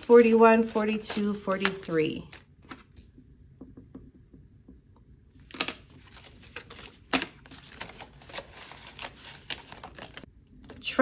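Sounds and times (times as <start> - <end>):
paper money rustling: 0.0 - 3.0, 5.4 - 10.3.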